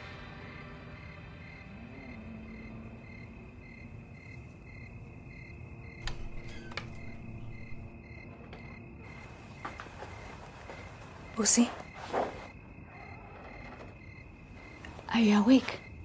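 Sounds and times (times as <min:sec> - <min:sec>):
crickets chirping: 0:00.0 - 0:16.0
door handle and latch clicks: 0:06.0 - 0:07.9.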